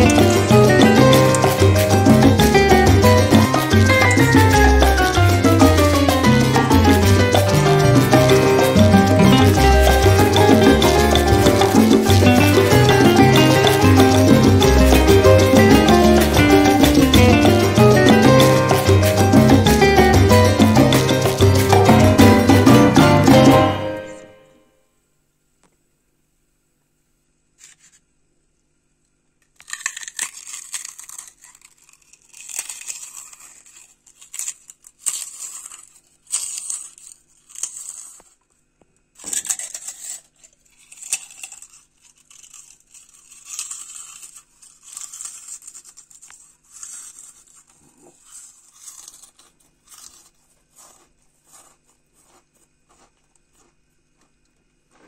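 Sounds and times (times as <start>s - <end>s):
crisp fried snacks crunching: 0.0s - 22.0s, 29.4s - 55.0s.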